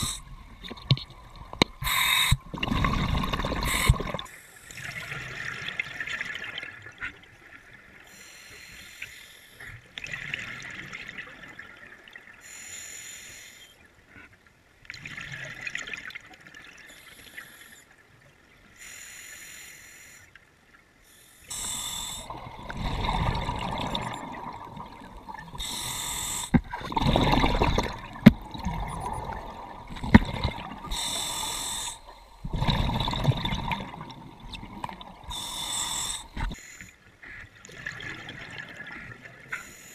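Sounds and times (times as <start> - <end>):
breathing through scuba regulator: 0.0 - 0.3, 1.8 - 4.8, 8.1 - 9.6, 18.8 - 20.3, 21.1 - 24.3, 25.5 - 28.4, 30.0 - 33.5, 34.9 - 37.0
exhaled bubbles gurgling: 0.0 - 7.0, 21.5 - 36.6, 37.7 - 39.5.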